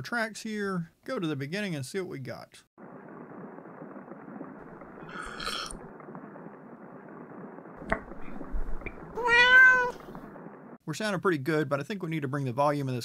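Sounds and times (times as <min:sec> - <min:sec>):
muffled rain: 0:00.8 - 0:13.0
sip: 0:05.1 - 0:05.8
cat meow: 0:09.1 - 0:10.0.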